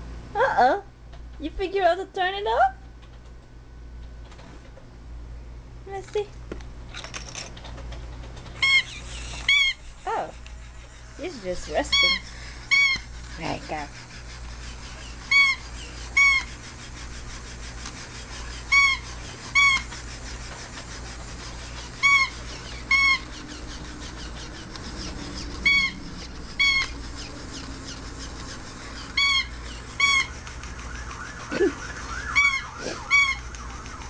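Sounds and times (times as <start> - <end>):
toy cat electronic calls: 8.6 - 10.3, 11.4 - 13.1, 15.1 - 16.6, 18.6 - 19.9, 22.0 - 26.0, 26.6 - 30.4, 32.4 - 33.6.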